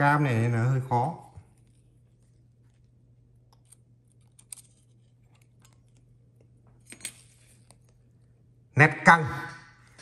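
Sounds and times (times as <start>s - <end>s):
faint steady low hum: 0.0s - 10.0s
faint clicks of handling phone parts: 1.4s - 8.3s.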